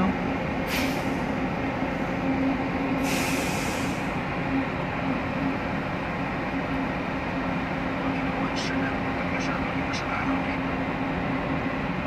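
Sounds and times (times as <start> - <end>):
air hiss: 3.0 - 4.1.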